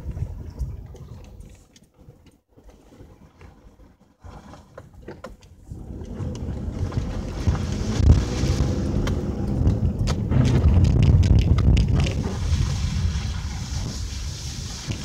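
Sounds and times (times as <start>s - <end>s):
wind buffeting microphone: 0.0s - 1.6s, 5.6s - 15.0s
tyres rumbling on dirt road: 5.7s - 15.0s.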